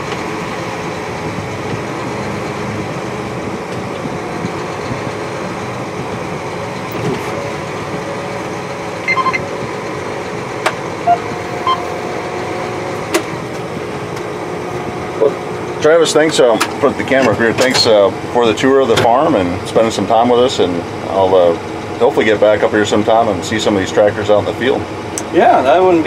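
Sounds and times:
tractor diesel engine running: 0:00.0 - 0:26.0
short beeps: 0:09.0 - 0:09.5, 0:11.0 - 0:12.0.

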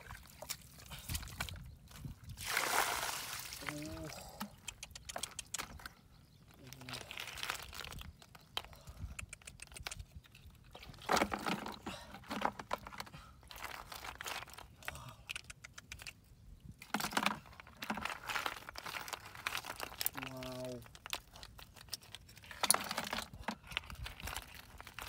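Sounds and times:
snail shells clattering in bucket: 0:06.8 - 0:08.7, 0:16.8 - 0:25.0.

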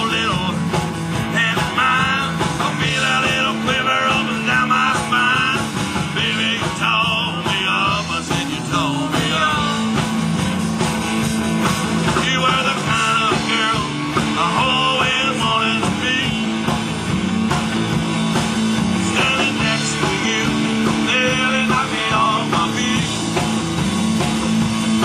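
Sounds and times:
live rock band: 0:00.0 - 0:25.0.

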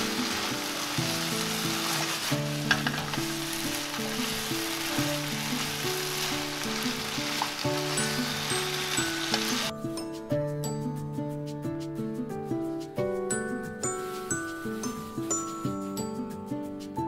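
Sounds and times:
food sizzling in a frying pan: 0:00.0 - 0:09.7
background music simple melody: 0:00.0 - 0:17.0.

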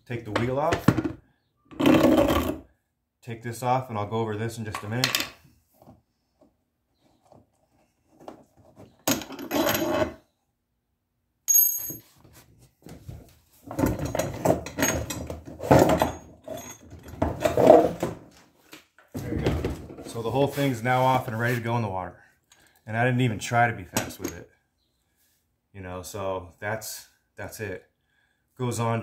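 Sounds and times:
plastic and metal parts clattering: 0:12.8 - 0:18.4.

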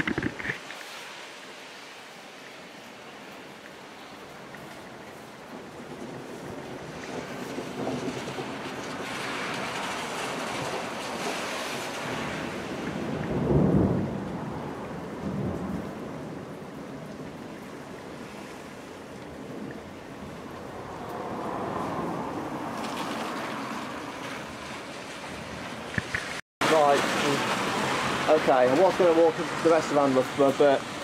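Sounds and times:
rain falling: 0:00.0 - 0:31.0
low rumble of thunder: 0:05.5 - 0:11.0, 0:12.0 - 0:18.0.

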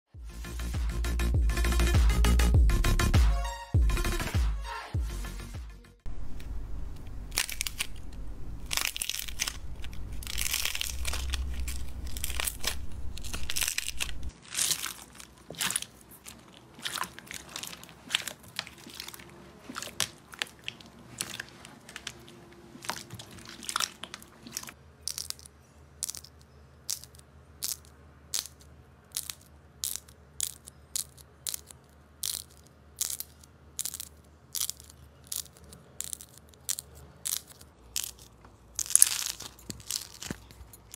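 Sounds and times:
low rumble: 0:06.0 - 0:14.3
slime crackling and popping: 0:07.3 - 0:26.3, 0:26.9 - 0:40.9.

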